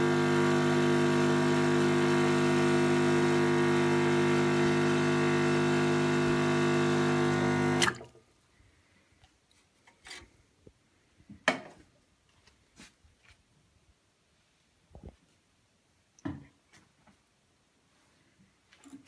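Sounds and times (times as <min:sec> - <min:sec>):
espresso machine pump buzzing: 0:00.0 - 0:08.0.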